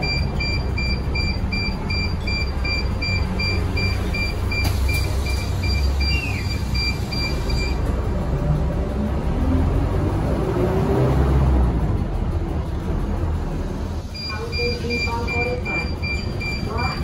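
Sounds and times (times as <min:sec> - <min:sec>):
electronic beeps: 0:00.0 - 0:07.8, 0:14.1 - 0:17.0
bus engine and road rumble: 0:00.0 - 0:17.0.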